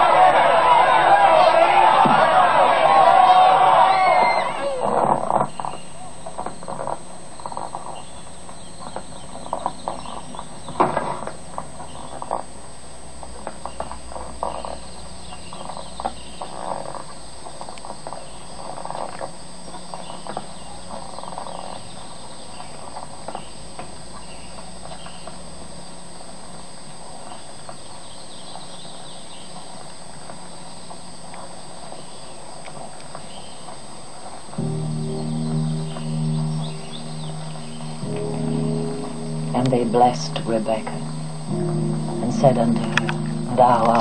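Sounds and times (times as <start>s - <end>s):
insects: 3.6s - 44.0s
low hum: 34.6s - 44.0s
steady high whine: 34.6s - 44.0s.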